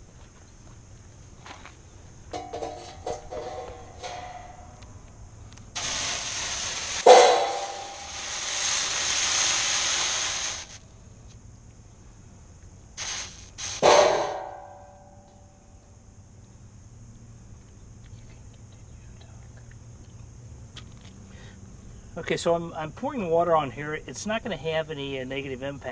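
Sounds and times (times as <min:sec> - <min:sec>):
water sizzling into steam: 0:05.8 - 0:10.8, 0:13.0 - 0:14.8
cymbal metallic ping ringing: 0:13.8 - 0:15.5.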